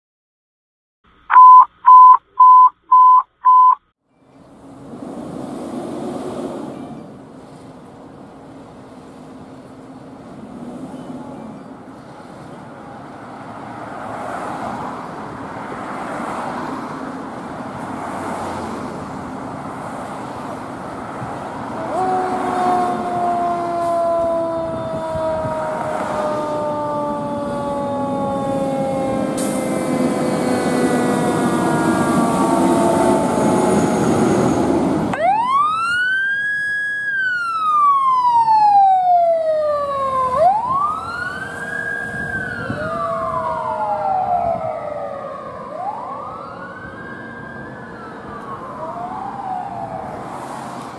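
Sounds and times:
diesel truck engine: 0:01.1 - 0:45.7
ambulance wail siren: 0:10.9 - 0:50.9
fire engine siren winding down: 0:18.1 - 0:50.9
second wailing siren: 0:21.2 - 0:50.8.

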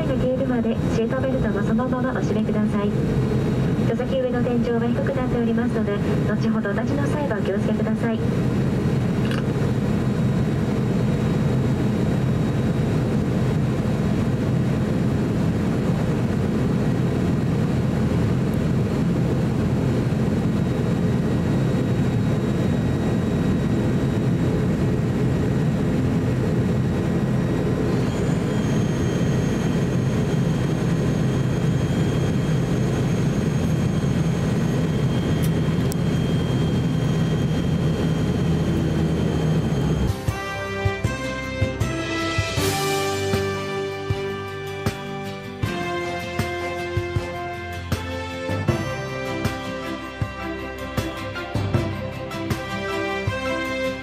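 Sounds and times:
turboprop engines droning: 0:00.0 - 0:54.0
thin high whine: 0:18.6 - 0:40.4.

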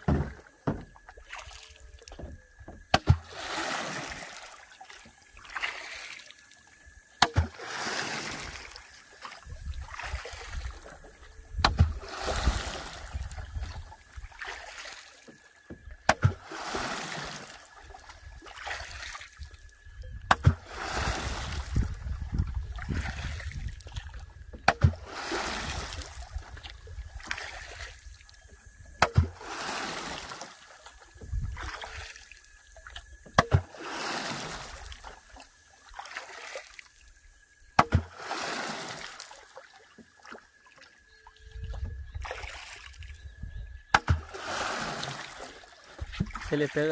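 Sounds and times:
wooden oar knock: 0:00.0 - 0:01.0, 0:33.2 - 0:33.7, 0:37.8 - 0:38.1, 0:43.9 - 0:44.3
oar splashing water: 0:00.0 - 0:46.9.

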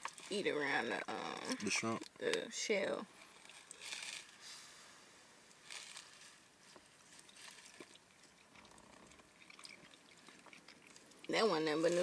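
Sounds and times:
soft rustle: 0:03.1 - 0:12.0.

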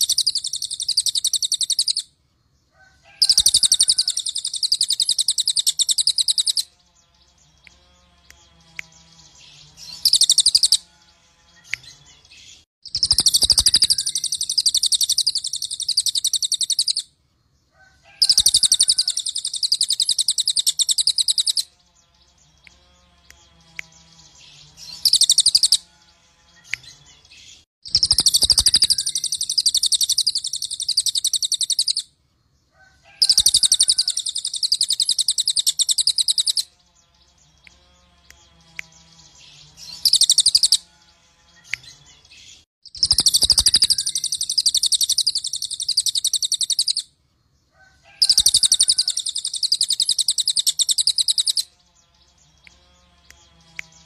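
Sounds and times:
bird singing rattling trills: 0:08.9 - 0:10.8, 0:12.8 - 0:17.0, 0:18.2 - 0:21.7, 0:23.9 - 0:25.8, 0:27.8 - 0:32.0, 0:33.2 - 0:36.7, 0:37.3 - 0:40.9, 0:42.9 - 0:47.0, 0:48.2 - 0:54.0.

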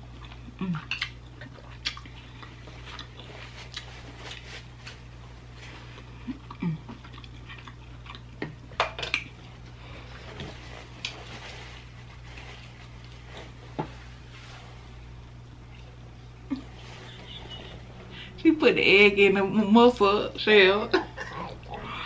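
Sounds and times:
steady low hum: 0:00.0 - 0:22.0
eating clicks and mouth noises: 0:00.1 - 0:03.9, 0:06.0 - 0:09.4.

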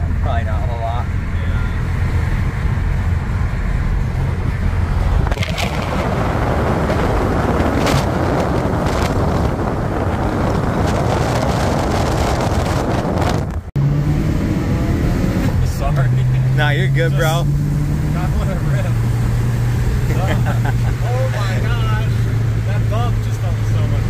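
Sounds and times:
car road and engine drone: 0:00.0 - 0:24.0
wind rush over microphone: 0:02.4 - 0:15.7.

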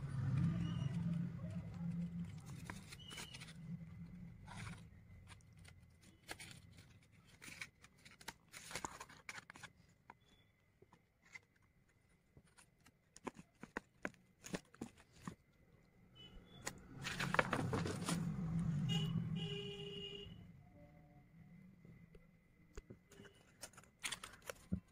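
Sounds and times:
paper and card rustling: 0:00.1 - 0:15.5, 0:16.6 - 0:18.6, 0:22.8 - 0:24.9.

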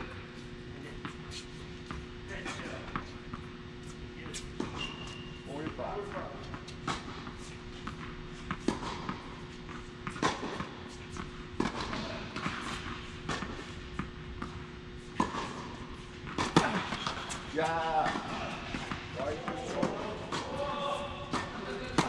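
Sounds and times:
tennis ball struck by racket: 0:06.1 - 0:17.4, 0:18.0 - 0:20.6, 0:21.3 - 0:22.0.

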